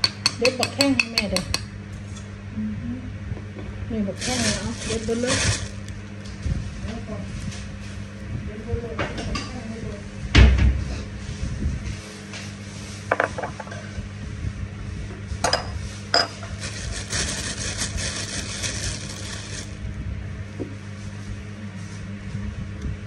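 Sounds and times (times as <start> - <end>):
pestle scraping and rustling: 16.5 - 19.8.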